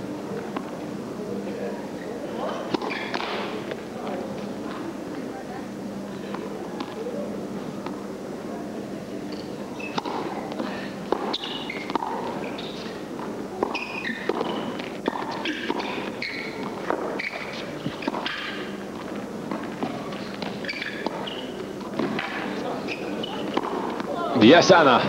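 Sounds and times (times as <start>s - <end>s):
shoes squeaking on court: 1.6s - 4.8s, 9.2s - 24.4s
rackets striking tennis ball: 2.4s - 4.8s, 9.2s - 24.2s.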